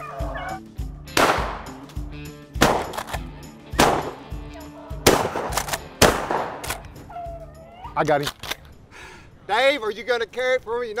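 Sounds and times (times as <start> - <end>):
background music with steady beat: 0.0 - 7.7
shotgun shots: 1.2 - 1.7, 2.6 - 3.2, 3.8 - 4.2, 5.0 - 6.8.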